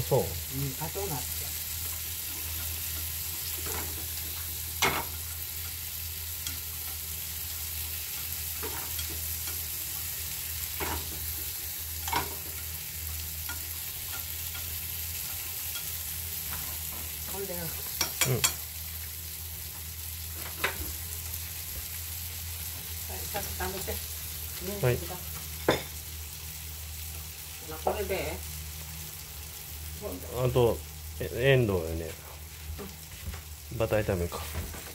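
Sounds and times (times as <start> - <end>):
peas sizzling in a frying pan: 0.0 - 34.9
chopsticks clicking against pan: 13.5 - 15.9.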